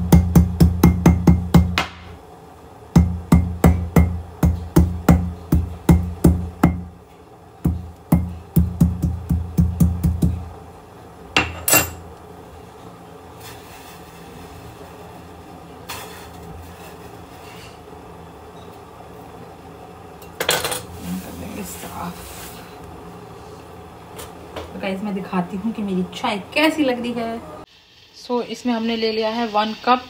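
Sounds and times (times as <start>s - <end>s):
metal pestle striking mortar: 0.1s - 2.0s, 3.0s - 6.9s.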